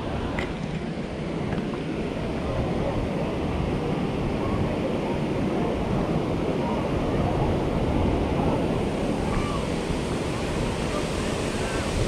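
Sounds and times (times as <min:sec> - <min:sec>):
waterfall rushing: 0:08.7 - 0:12.0.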